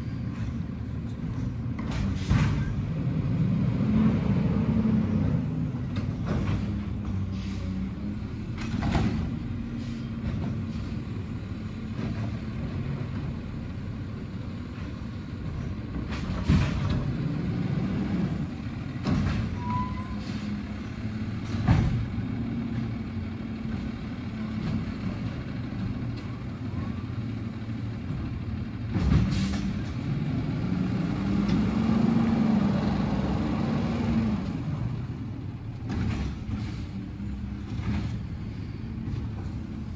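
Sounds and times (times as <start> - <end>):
diesel truck engine running: 0.0 - 39.9
air brake hisses: 7.1 - 7.8, 9.8 - 11.0, 29.3 - 29.7.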